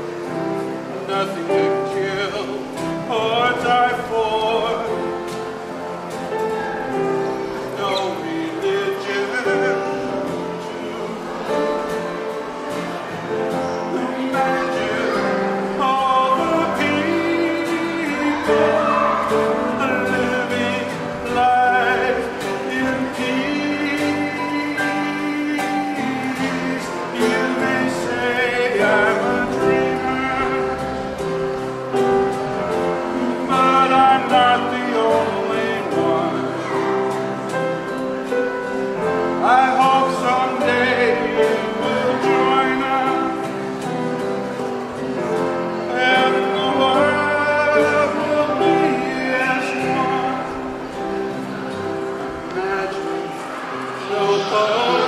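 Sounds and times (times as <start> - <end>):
acoustic guitar: 0.0 - 55.0
held accompanying notes: 0.0 - 55.0
group singing: 13.0 - 38.2, 39.1 - 44.0, 45.0 - 51.2, 52.5 - 55.0.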